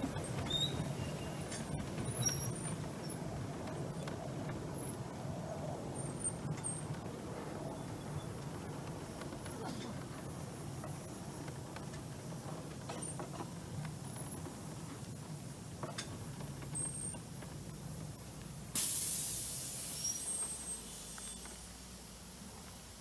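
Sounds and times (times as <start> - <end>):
miniature train rumbling: 0.0 - 23.0
steam hissing: 6.0 - 23.0.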